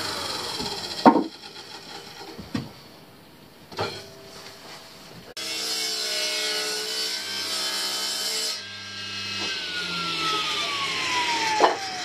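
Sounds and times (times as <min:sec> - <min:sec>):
saw motor hum: 0:00.0 - 0:02.3, 0:08.7 - 0:12.0
saw blade spinning down: 0:00.0 - 0:02.4, 0:09.5 - 0:12.0
table saw cutting wood: 0:00.0 - 0:02.4, 0:05.4 - 0:12.0.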